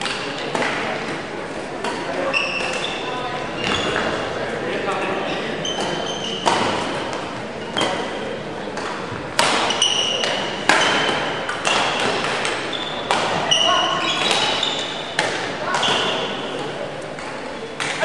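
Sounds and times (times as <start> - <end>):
sneaker squeaks on court floor: 2.2 - 4.3, 5.2 - 8.0, 9.5 - 16.6
racket striking shuttlecock: 5.8 - 7.2, 8.8 - 13.6, 14.2 - 16.4.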